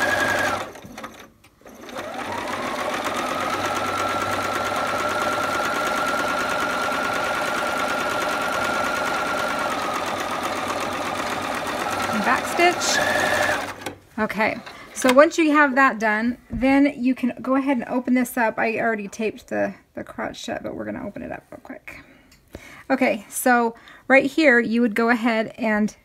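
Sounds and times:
sewing machine stitching: 0.0s - 15.2s.

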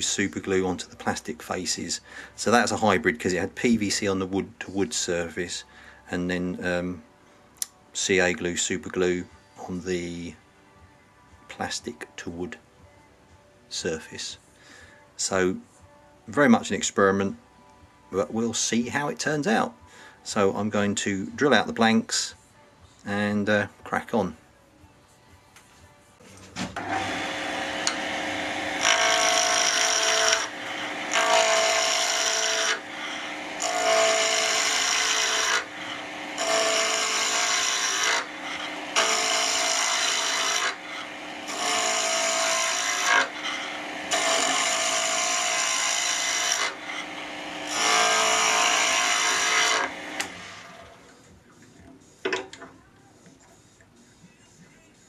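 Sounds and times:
turning tool scraping wood: 26.4s - 51.2s
wood lathe humming: 26.8s - 51.1s.

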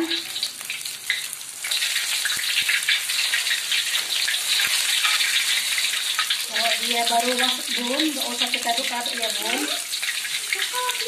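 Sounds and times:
dough deep-frying in oil: 0.0s - 11.0s.

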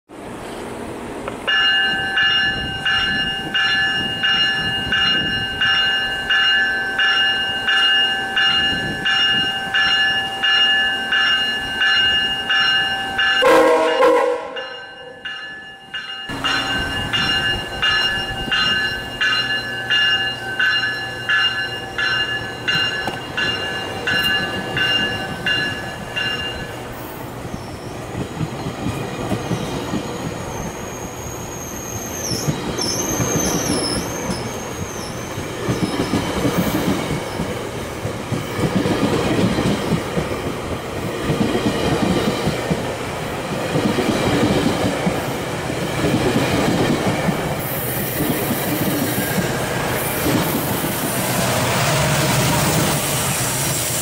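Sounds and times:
train rumble: 0.1s - 54.0s
bell ringing: 1.5s - 26.8s
wavering wheel squeal: 29.4s - 36.7s.

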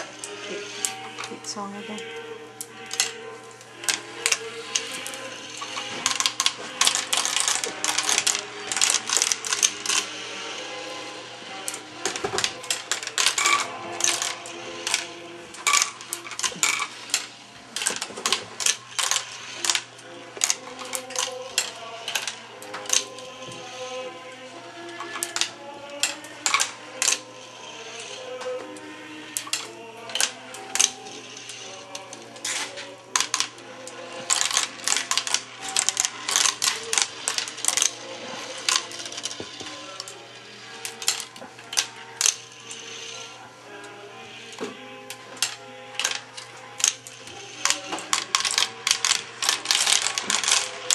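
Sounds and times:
marbles clattering on plastic track: 0.0s - 2.2s, 2.8s - 3.2s, 3.8s - 50.9s.

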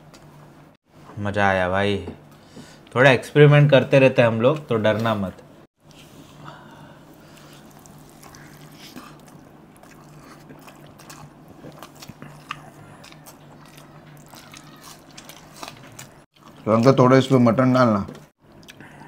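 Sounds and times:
people chewing food: 5.8s - 19.0s.

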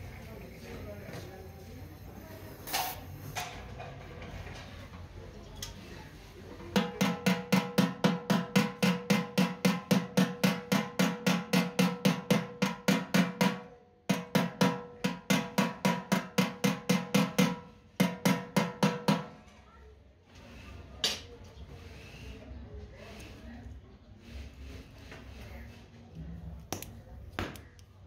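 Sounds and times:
hammer tapping on metal: 6.8s - 19.3s.

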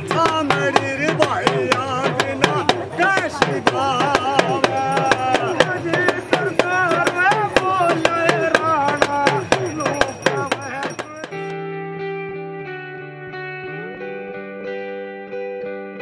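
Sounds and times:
hourglass drums beaten with sticks: 0.0s - 11.5s
men singing: 0.0s - 11.5s.

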